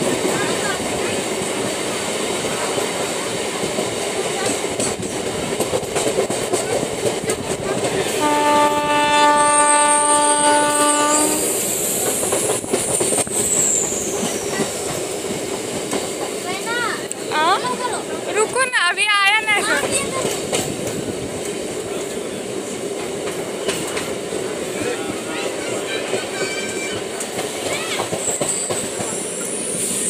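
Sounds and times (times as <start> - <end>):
train wheels clattering on track: 0.0 - 30.0
train horn: 8.1 - 11.6.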